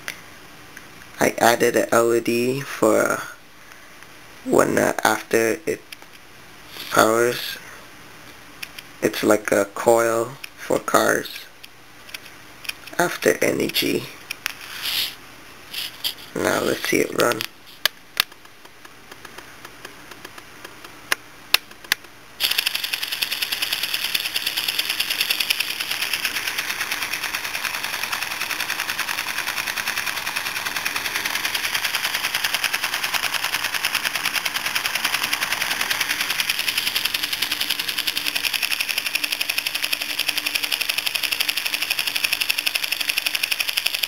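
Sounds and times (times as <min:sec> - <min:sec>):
solenoid engine clicking: 0:22.4 - 0:44.0.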